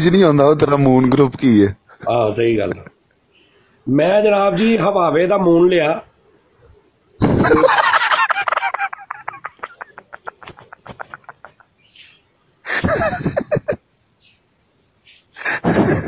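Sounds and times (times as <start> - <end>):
man laughing hard: 7.2 - 11.8, 12.6 - 13.9, 15.4 - 16.0.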